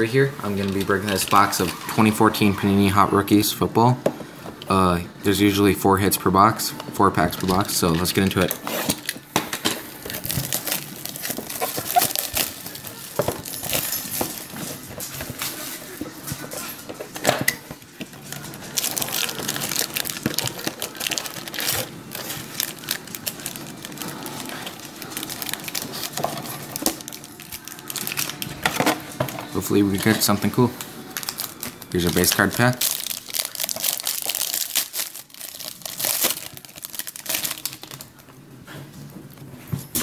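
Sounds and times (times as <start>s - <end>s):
foil packs crinkling: 7.2s - 38.3s.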